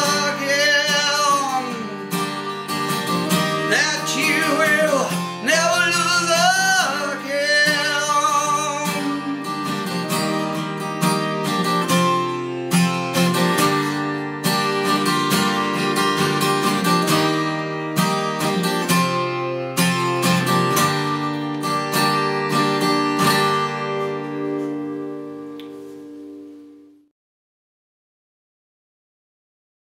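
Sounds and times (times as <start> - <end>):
person singing: 0.0 - 2.3, 3.3 - 10.1
acoustic guitar picked notes: 0.0 - 27.1.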